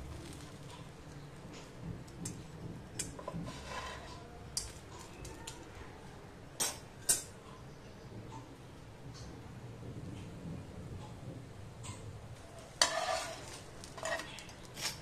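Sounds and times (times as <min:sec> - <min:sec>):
metal tongs tapping a pan: 0:04.5 - 0:05.6, 0:06.6 - 0:07.3.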